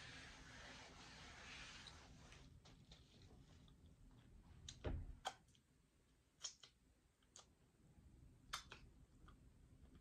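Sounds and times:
wet mouth clicks eating: 8.5s - 9.4s.

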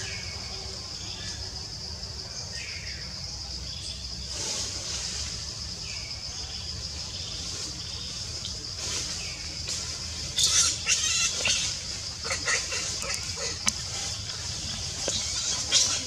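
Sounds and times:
insects buzzing: 0.0s - 16.0s
infant monkey squealing: 10.4s - 13.6s.

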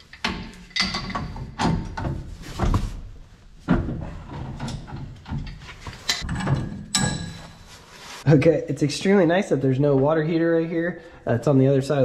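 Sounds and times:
pipe wrench clanking on iron pipe: 0.1s - 2.2s, 4.6s - 7.6s.

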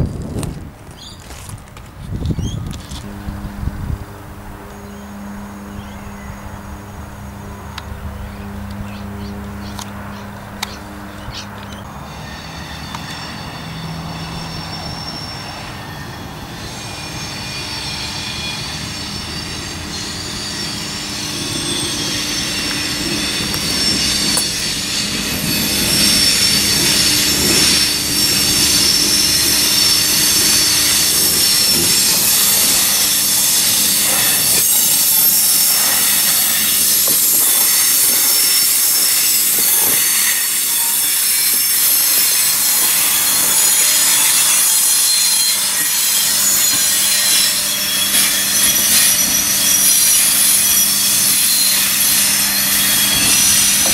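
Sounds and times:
railcar engine: 0.0s - 53.9s
high-pitched wheel squeal: 4.1s - 53.9s
wheels clicking over rail joints: 17.8s - 53.9s.

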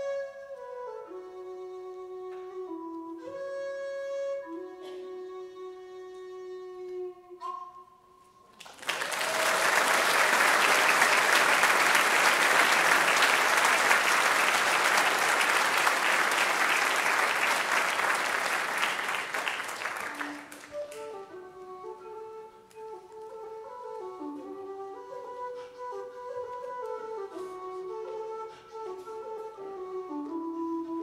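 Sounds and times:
low whistle playing a tune: 0.0s - 8.5s, 9.6s - 31.0s
audience applause: 8.6s - 20.9s.

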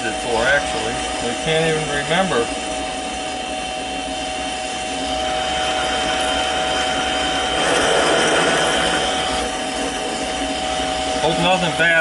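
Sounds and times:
lathe running with whine: 0.0s - 12.0s
rough metal scraping: 7.3s - 9.4s.

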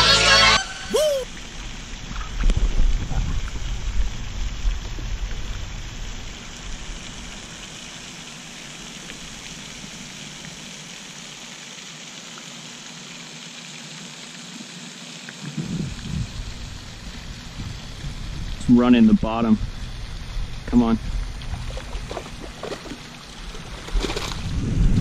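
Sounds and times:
fountain spray falling on water: 0.4s - 23.8s
wind rumbling on microphone: 15.5s - 22.6s, 23.4s - 25.0s.

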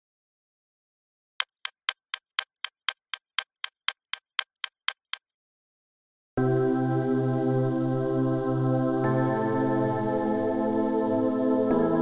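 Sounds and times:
clock ticking: 1.4s - 5.3s.

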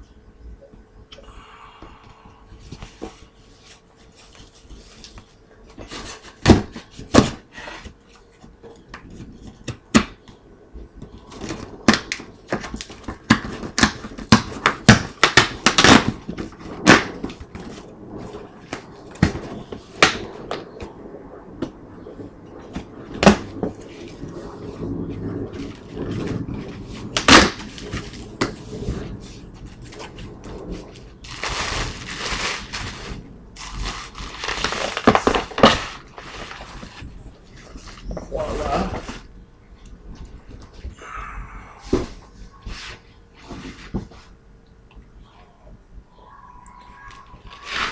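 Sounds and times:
cardboard knocks and snaps: 5.8s - 7.4s, 8.9s - 10.4s, 11.0s - 17.7s, 22.7s - 23.7s, 27.2s - 28.6s.

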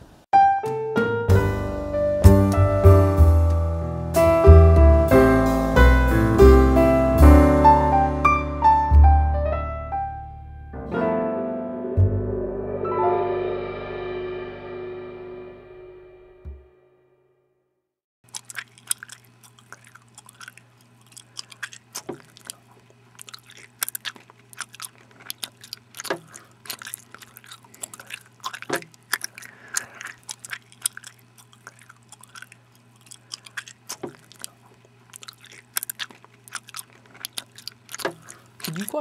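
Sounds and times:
person chewing loudly: 18.2s - 39.0s
low electrical hum: 18.3s - 39.0s.

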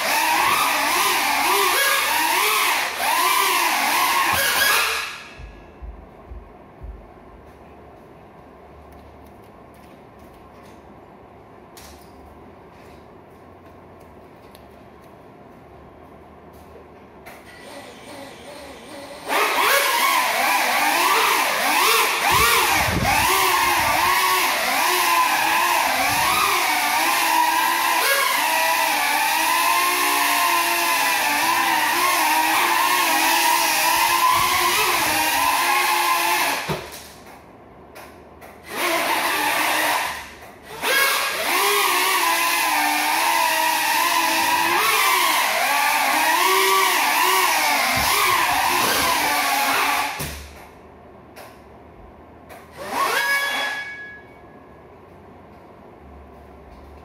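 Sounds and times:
drone motors buzzing whine: 17.4s - 36.9s, 38.6s - 50.5s.

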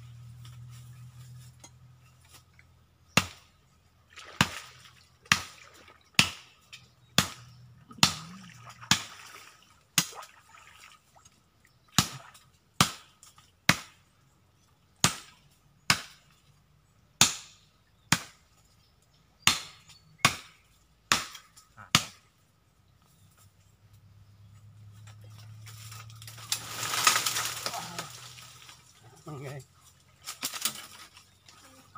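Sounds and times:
machete chopping wood: 3.1s - 3.6s, 5.2s - 5.6s, 6.2s - 9.2s, 10.0s - 10.3s, 12.0s - 14.0s, 15.0s - 16.3s, 17.2s - 18.4s, 19.4s - 22.2s.

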